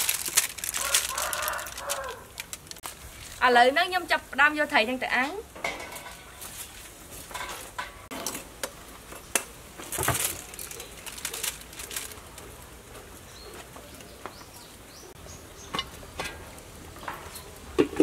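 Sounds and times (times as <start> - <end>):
aluminium foil crinkling: 0.0 - 4.1, 9.8 - 13.7.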